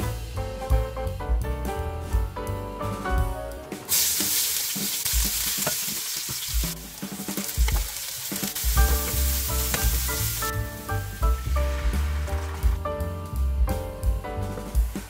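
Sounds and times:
background music with drum beat: 0:00.0 - 0:15.0
garlic sizzling in hot oil: 0:03.9 - 0:12.5.

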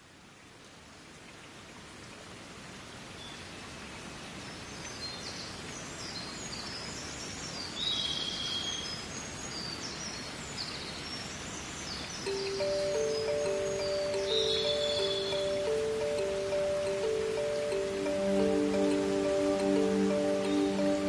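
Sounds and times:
outdoor hiss: 0:00.0 - 0:21.0
small birds chirping: 0:04.8 - 0:21.0.

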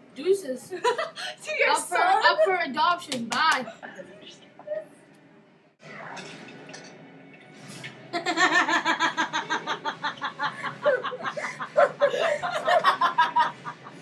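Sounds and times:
young women laughing loudly: 0:08.2 - 0:14.0.

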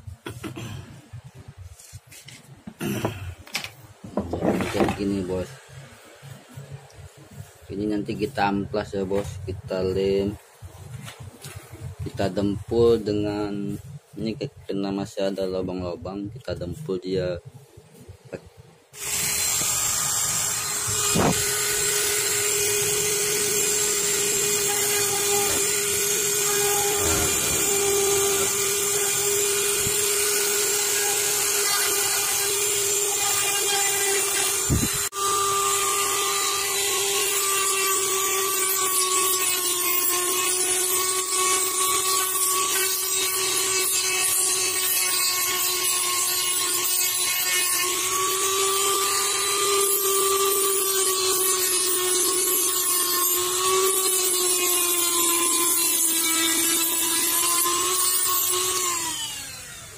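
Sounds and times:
rotary tool grinding plastic: 0:19.0 - 0:59.9.

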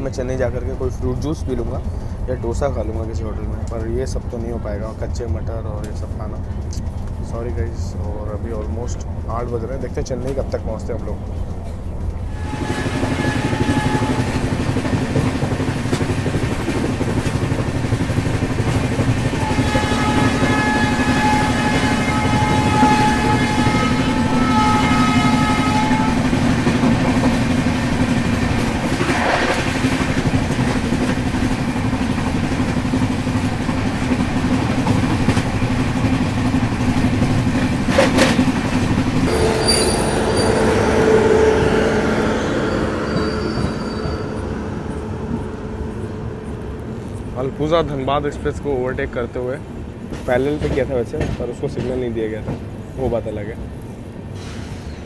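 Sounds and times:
train wheels rumbling on rail: 0:00.0 - 0:55.0
long pitched tone: 0:39.3 - 0:47.9
rushing air: 0:39.3 - 0:48.0.

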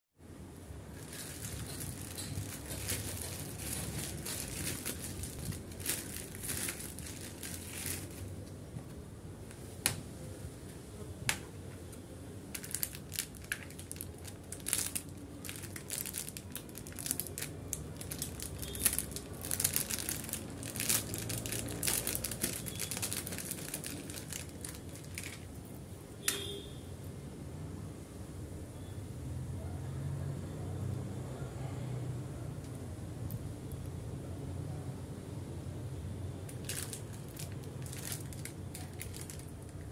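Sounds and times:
plastic packaging crinkling: 0:00.8 - 0:08.5, 0:12.5 - 0:25.6, 0:36.5 - 0:39.9.

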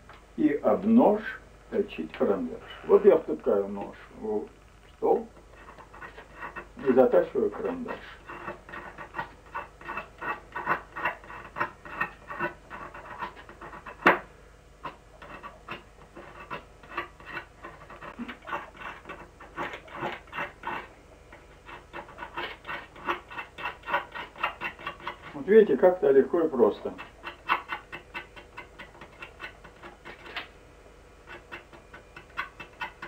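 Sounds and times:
knife scraping pencil: 0:05.2 - 0:25.5, 0:26.7 - 0:30.6, 0:31.2 - 0:33.0.

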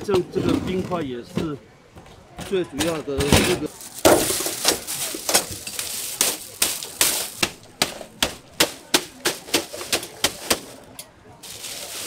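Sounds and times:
mallet pounding bag of ice: 0:02.8 - 0:10.8.

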